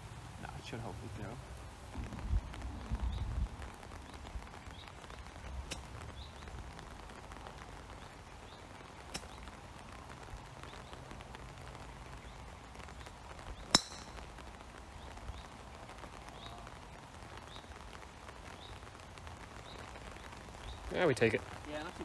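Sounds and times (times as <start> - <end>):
golf club striking ball: 13.7 - 14.3
faint bird chirps: 16.2 - 16.8.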